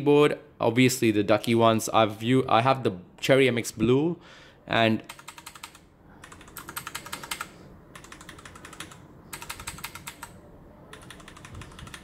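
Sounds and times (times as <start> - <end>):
mechanical keyboard keys tapping: 5.1 - 12.0.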